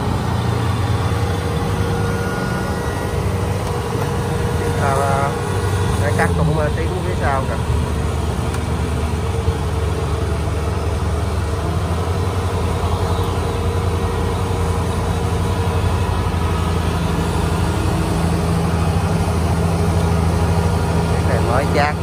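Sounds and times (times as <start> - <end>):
combine harvester diesel engine: 0.0 - 22.0.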